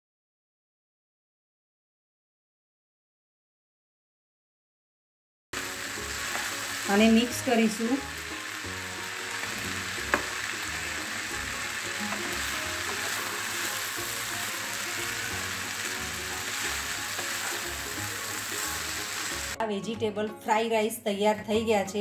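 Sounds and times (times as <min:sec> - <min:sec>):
rice sizzling in a frying pan: 0:05.6 - 0:19.6
quiet background music: 0:05.6 - 0:22.0
spatula stirring food: 0:06.0 - 0:06.9, 0:08.2 - 0:19.6.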